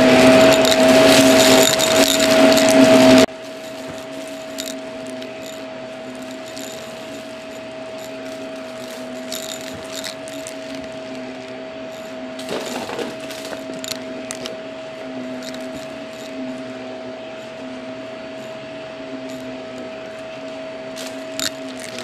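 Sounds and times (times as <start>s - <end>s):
debris crackling in vacuum: 0.0s - 14.5s
vacuum cleaner motor whine: 0.0s - 22.0s.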